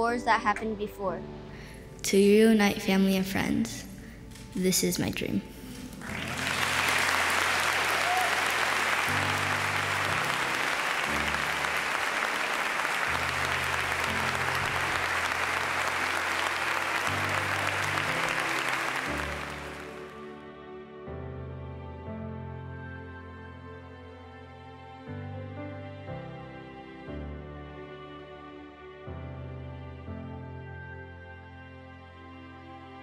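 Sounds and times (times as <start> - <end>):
slow background music: 0.0 - 33.0
audience applauding: 5.8 - 20.3.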